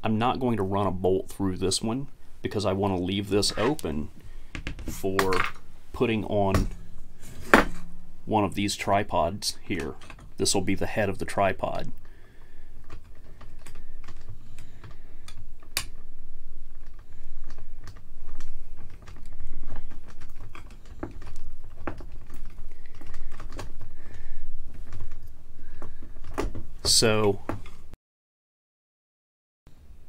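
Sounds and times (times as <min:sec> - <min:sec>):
plastic scraping on metal: 0:03.3 - 0:04.1.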